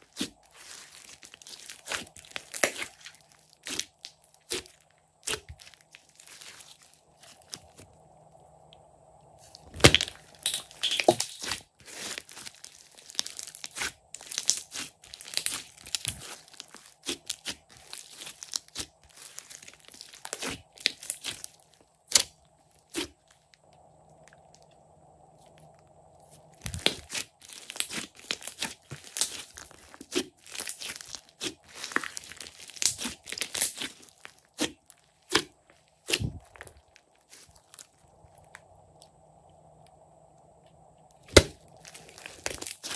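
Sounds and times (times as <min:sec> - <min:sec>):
slime crackling and popping: 0:00.0 - 0:07.9, 0:09.4 - 0:24.7, 0:26.5 - 0:39.1, 0:41.1 - 0:42.9.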